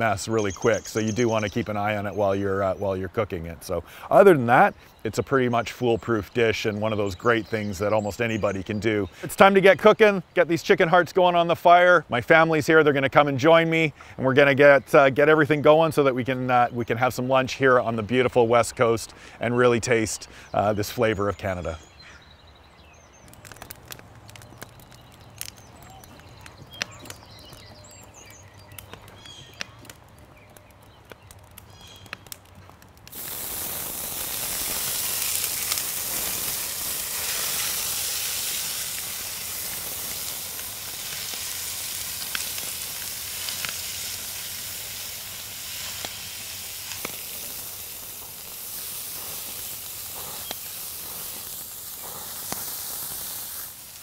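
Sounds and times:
faint crackling: 23.2 - 54.0
oil popping: 23.2 - 54.0
meat sizzling in hot oil: 33.1 - 54.0.

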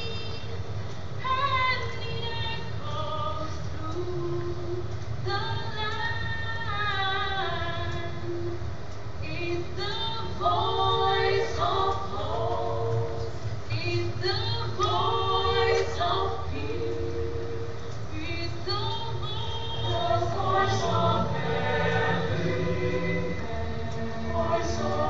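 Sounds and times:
choir singing: 9.5 - 25.0.

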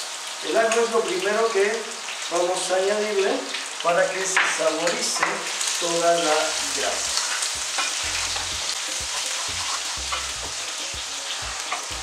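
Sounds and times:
meat sizzling in oil: 0.0 - 12.0
wooden spoon scraping pan: 7.0 - 10.6.

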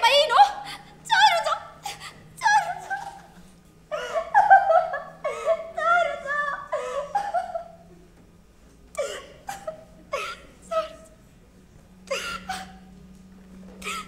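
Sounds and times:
woman's wavering high voice: 0.0 - 3.4, 5.5 - 6.8.

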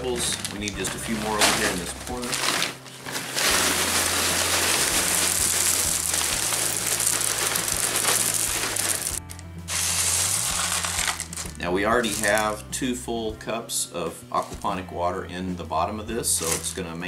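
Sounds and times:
clay pebbles pouring into tray: 0.0 - 12.6
pebbles pushed by hand: 0.0 - 12.6, 14.4 - 14.8, 16.3 - 16.8
plastic bag crinkling: 0.0 - 12.6, 16.4 - 16.7.

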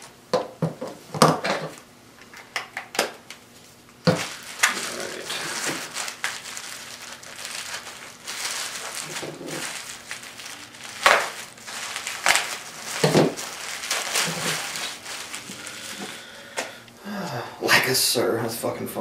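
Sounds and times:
items knocking together: 4.0 - 16.7
packaging rustling: 4.0 - 16.8.

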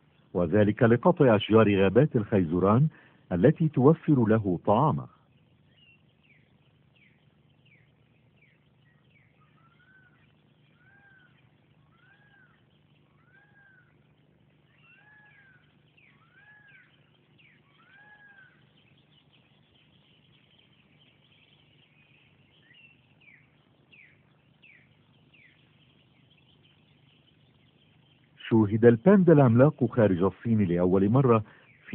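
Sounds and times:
falling animal chirps: 5.0 - 30.3
rising and falling animal calls: 9.1 - 19.4.

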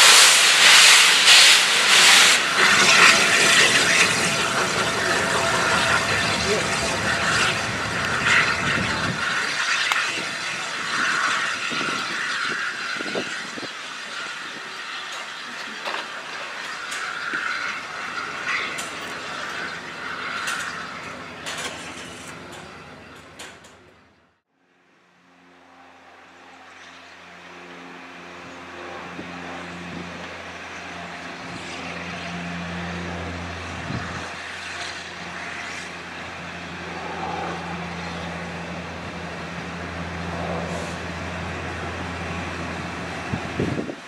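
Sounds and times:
steam hiss: 0.0 - 20.6
steam train running: 0.0 - 23.8, 30.1 - 44.0.

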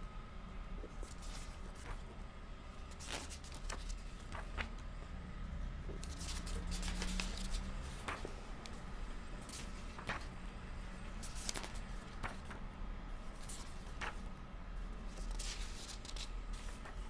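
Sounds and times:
low steady hum: 0.0 - 17.0
book pages turning: 0.9 - 2.1, 2.8 - 5.0, 5.9 - 10.4, 11.1 - 12.6, 13.3 - 14.3, 15.1 - 17.0.

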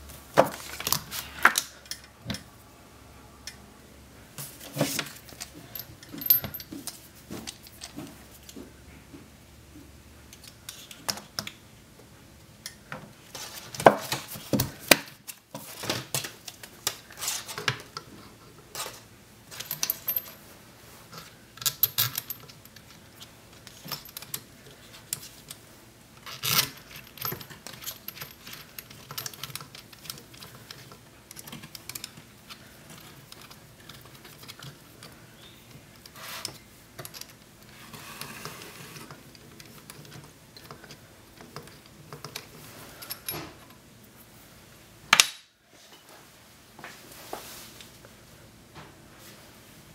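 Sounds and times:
metal valve parts clinking: 4.4 - 8.6, 18.8 - 20.4, 21.2 - 25.6, 26.2 - 38.4, 39.1 - 43.7.

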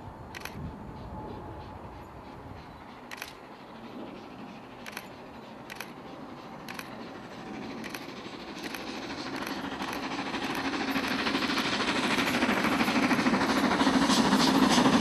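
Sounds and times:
steam locomotive rumble: 0.0 - 15.0
sharp clicks: 3.1 - 3.4, 4.8 - 6.0, 6.6 - 7.0, 7.8 - 11.4.

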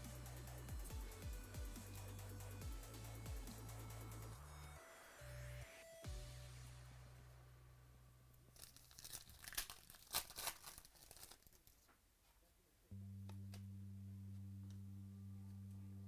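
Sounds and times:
foil wrapper tearing and crinkling: 8.5 - 11.9
steady low hum: 12.9 - 16.0.

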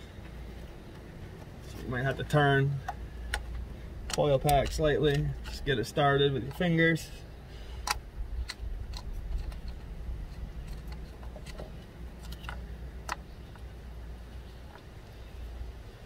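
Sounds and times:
low steady rumble: 0.0 - 16.0
light clicks of hands on parts: 0.2 - 6.7, 7.7 - 13.7.

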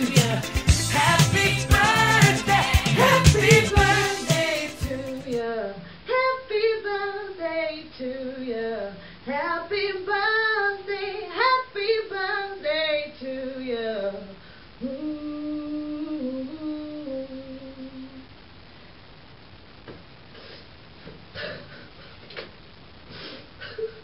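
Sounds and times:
woman singing unaccompanied: 0.0 - 18.3.

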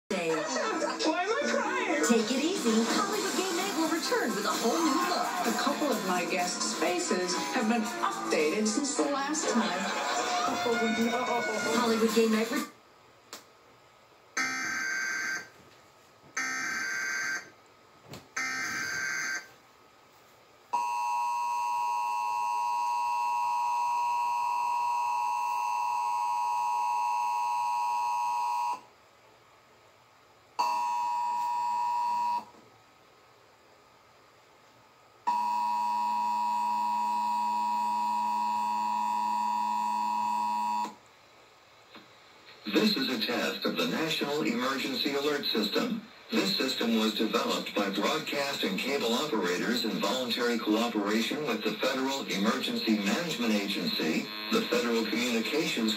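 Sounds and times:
two-tone attention signal: 35.3 - 41.0.

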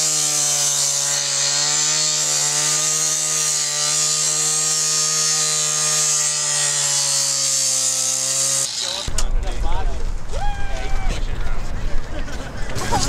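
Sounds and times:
disc grinding through steel: 0.0 - 9.1.

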